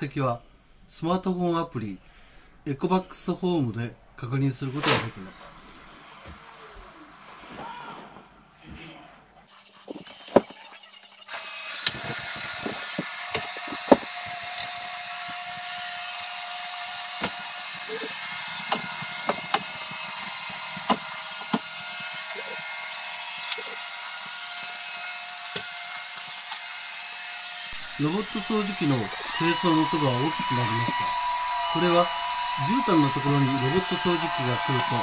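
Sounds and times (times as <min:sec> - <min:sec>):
robot vacuum cleaner running: 0:10.2 - 0:35.0.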